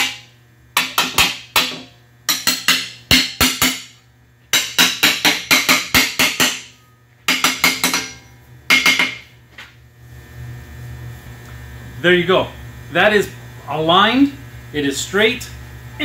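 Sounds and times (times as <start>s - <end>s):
hammer tapping metal plate: 0.8s - 3.9s, 4.5s - 6.7s, 7.3s - 9.3s.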